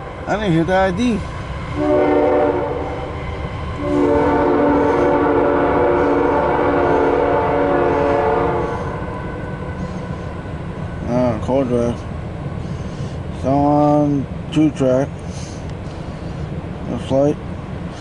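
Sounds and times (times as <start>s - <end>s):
low rumble of train: 0.0s - 18.0s
locomotive horn blasts: 1.8s - 3.2s, 3.8s - 9.7s.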